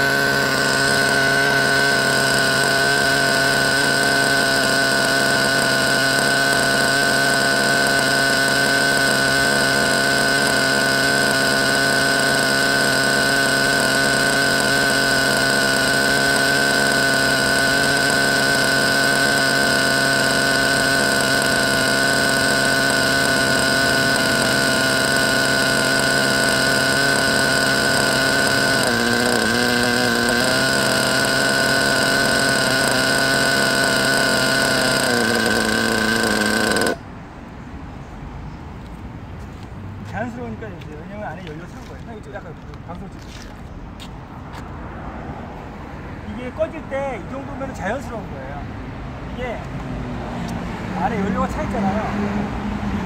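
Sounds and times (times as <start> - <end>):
model engine idling: 0.0 - 37.1.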